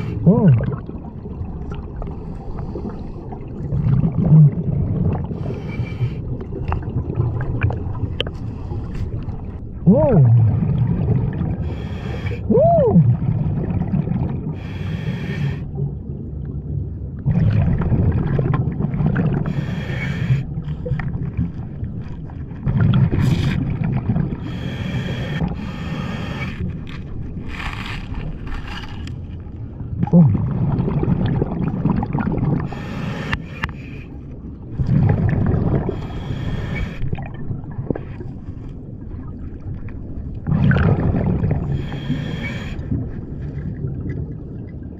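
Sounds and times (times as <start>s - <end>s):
diver breathing through regulator: 0.0s - 0.2s, 5.3s - 6.3s, 11.6s - 12.5s, 14.5s - 15.7s, 19.4s - 21.2s, 24.4s - 27.0s, 32.6s - 34.2s, 35.8s - 37.1s, 41.6s - 43.0s
bubbling exhales: 0.0s - 8.6s, 30.0s - 33.4s, 34.7s - 38.2s, 40.4s - 44.1s.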